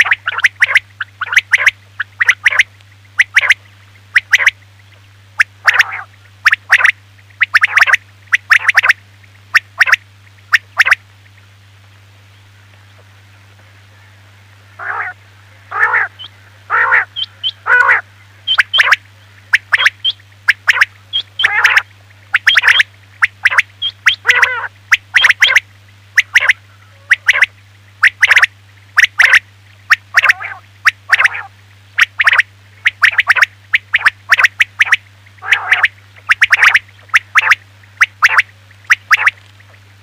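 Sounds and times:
quail calling: 0.0 - 4.6, 5.4 - 11.0, 14.7 - 39.8
steady low hum: 0.0 - 40.0
quick high pips: 15.7 - 25.6, 26.2 - 39.4.

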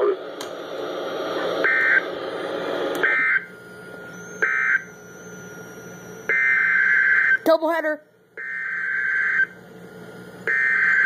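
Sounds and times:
radio hiss: 0.0 - 3.2.

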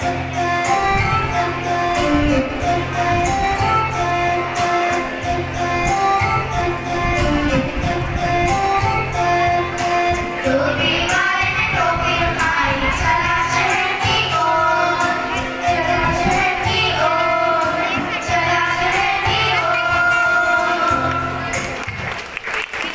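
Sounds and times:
instrumental music with beat: 0.0 - 11.4
children singing: 0.0 - 21.7.

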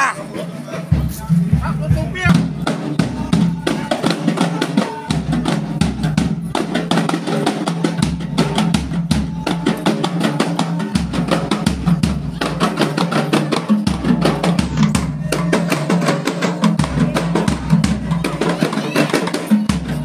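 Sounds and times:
procession drums beating: 0.0 - 20.0
bass drum: 0.9 - 7.1.

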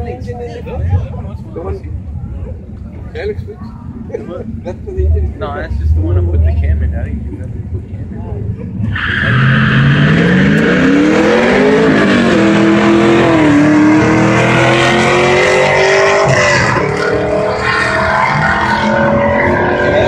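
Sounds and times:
drag race cars accelerating: 5.1 - 20.0.

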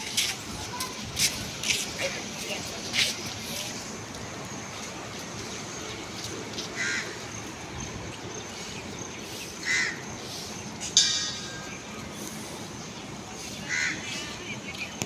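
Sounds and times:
outdoor background noise: 0.0 - 15.0
crow cawing: 6.8 - 7.2, 9.6 - 10.0, 13.7 - 14.1.

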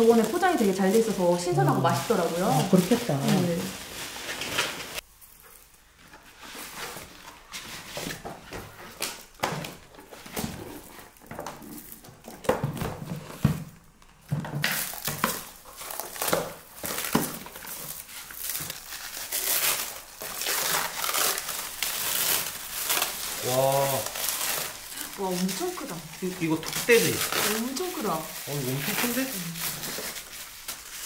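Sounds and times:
plastic bags crinkling: 0.0 - 5.8, 14.6 - 31.0.

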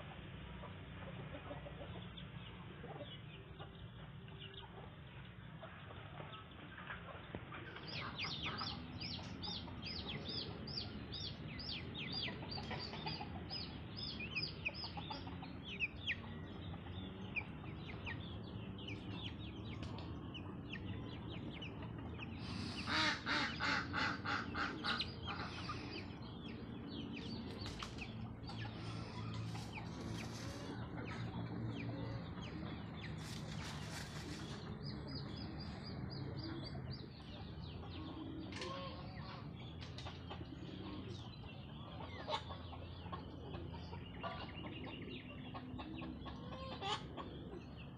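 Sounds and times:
chickens clucking: 0.0 - 47.9
chicks peeping: 0.0 - 47.9
chicken repeated loud calls: 22.4 - 26.7, 45.8 - 47.2.

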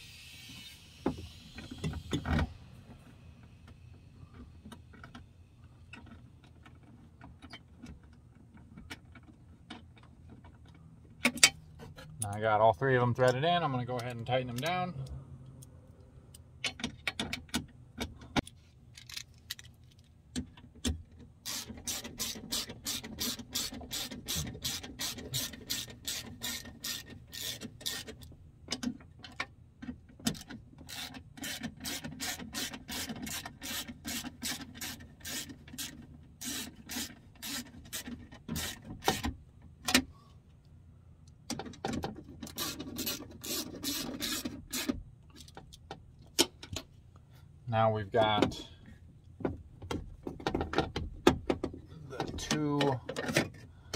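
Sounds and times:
hand ratchet clicking: 21.4 - 28.3, 30.3 - 39.3, 42.4 - 45.6.

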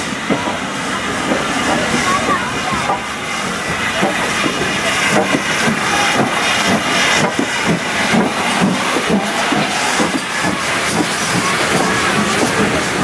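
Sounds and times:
locomotive running gear clanking: 0.0 - 13.0
steam hissing: 0.0 - 13.0.

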